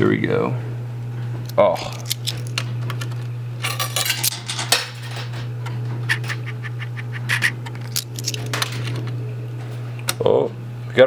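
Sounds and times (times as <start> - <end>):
steady low hum: 0.0 - 11.0
coins clinking in coin pusher: 1.8 - 9.2.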